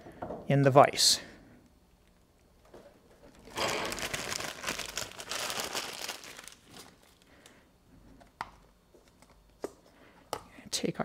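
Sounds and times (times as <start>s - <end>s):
plastic bag crinkling: 3.3s - 7.5s.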